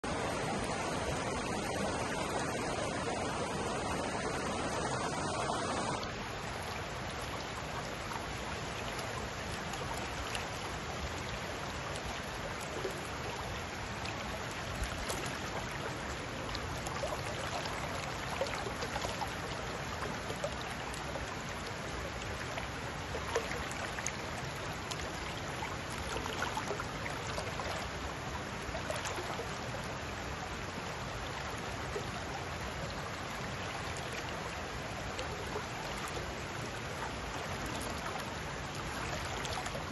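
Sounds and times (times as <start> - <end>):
small splashes and trickles: 0.0 - 39.9
water rushing over rocks: 0.0 - 39.9.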